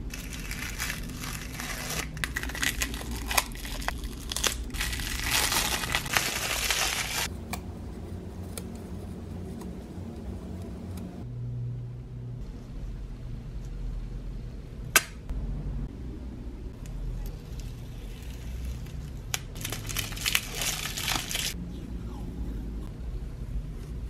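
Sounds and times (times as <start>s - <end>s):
crinkling paper and tape: 0.0s - 7.3s, 17.3s - 21.6s
steady low rumble: 0.0s - 24.0s
peeling tape: 0.1s - 7.3s, 17.5s - 21.6s.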